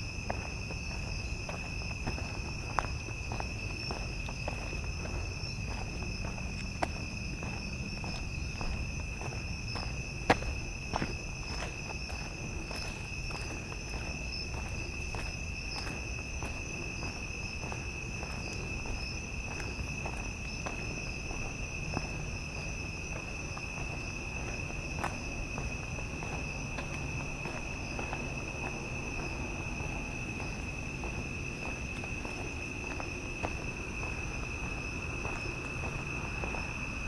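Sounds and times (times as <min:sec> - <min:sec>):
footsteps walking: 0:00.0 - 0:37.0
night insects trilling: 0:00.0 - 0:37.0.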